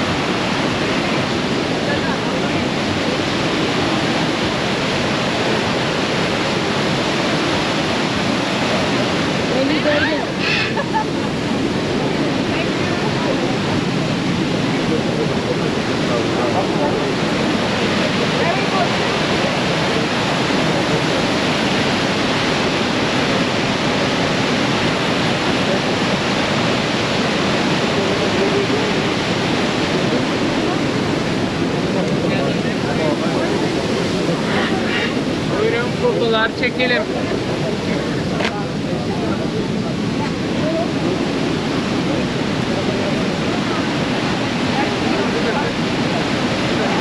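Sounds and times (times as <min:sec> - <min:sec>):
waterfall rushing over rock: 0:00.0 - 0:47.0.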